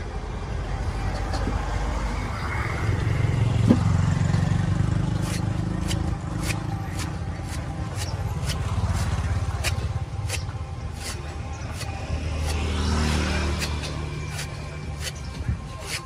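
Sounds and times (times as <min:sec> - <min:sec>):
cleaver chopping coconut husk: 0:04.8 - 0:16.0.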